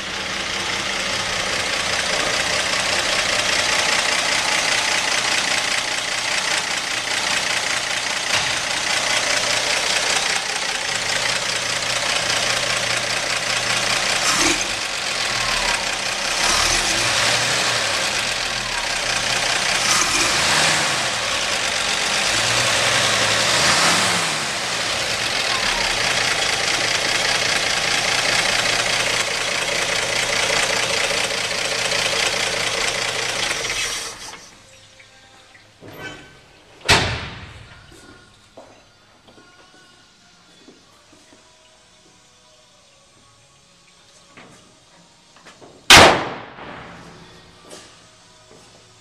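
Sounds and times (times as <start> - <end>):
pickup engine idling: 0.0 - 35.8.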